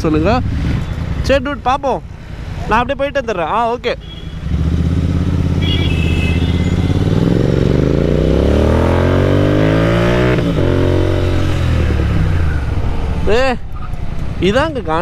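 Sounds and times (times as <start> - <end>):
motorcycle engine accelerating: 4.4 - 13.5.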